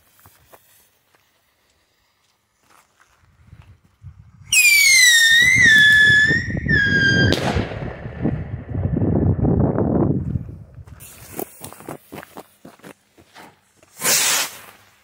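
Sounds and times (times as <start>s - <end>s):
firework whistle: 4.5s - 7.7s, 14.0s - 14.6s
firework crackling rumble: 4.5s - 11.4s
firework bang: 4.6s - 9.6s.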